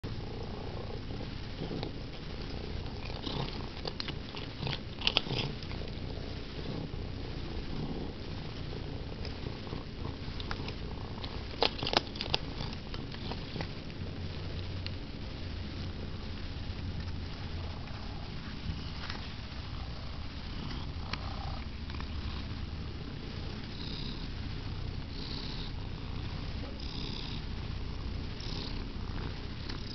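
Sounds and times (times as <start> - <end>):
cat purring: 0.0 - 29.9
sharp chewing clicks: 2.8 - 6.0, 10.3 - 14.0.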